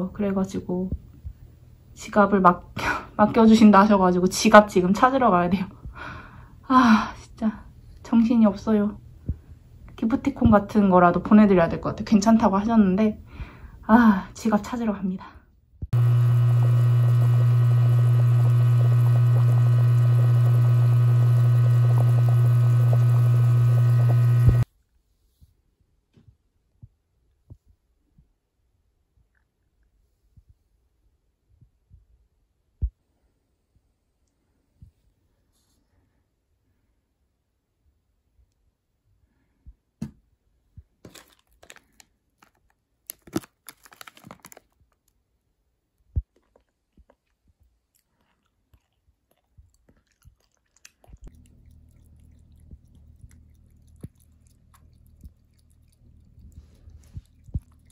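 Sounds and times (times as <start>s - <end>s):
boiling water bubbling pops: 16.0s - 24.6s
low electrical hum: 16.0s - 24.6s, 51.2s - 57.9s
plastic wrapper crinkling: 41.0s - 45.2s.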